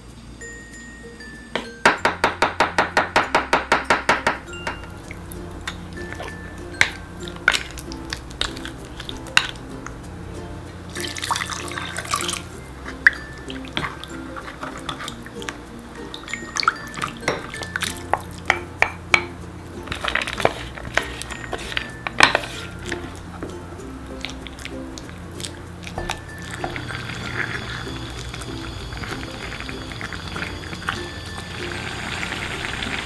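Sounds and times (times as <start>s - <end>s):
light background music: 0.0s - 33.0s
spoon knocking against pot: 1.6s - 4.9s
wooden spoon stirring in pot: 4.9s - 10.0s, 11.0s - 19.2s, 19.8s - 31.6s.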